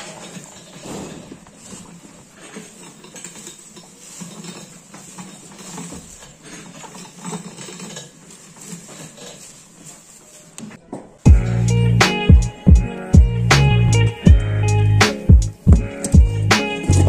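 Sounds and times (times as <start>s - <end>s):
cow chewing: 0.0s - 10.6s
hay rustling: 0.0s - 10.6s.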